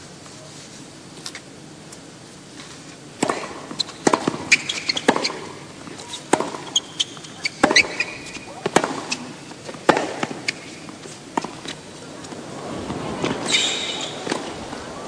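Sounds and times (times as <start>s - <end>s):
racket striking ball: 3.2s - 14.8s
tennis ball bounces: 3.2s - 14.8s
shoes squeaking on court: 3.7s - 15.0s.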